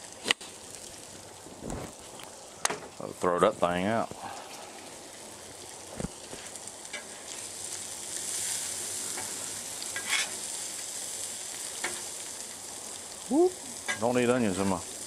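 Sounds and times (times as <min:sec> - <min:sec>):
food sizzling on a griddle: 0:00.0 - 0:15.0
metal spatula scraping: 0:10.0 - 0:10.4.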